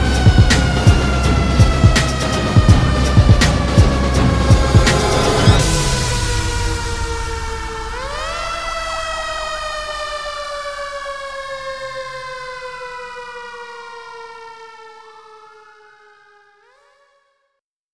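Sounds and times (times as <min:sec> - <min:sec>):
multi-tone siren-like wail: 0:00.0 - 0:17.6.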